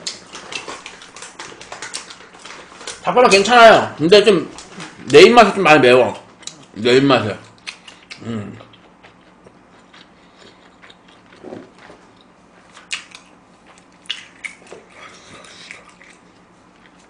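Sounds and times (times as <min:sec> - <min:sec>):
person chewing: 0:00.0 - 0:03.0, 0:06.2 - 0:06.8, 0:07.4 - 0:17.0
wet mouth clicks and smacks: 0:07.5 - 0:09.3, 0:12.7 - 0:16.2.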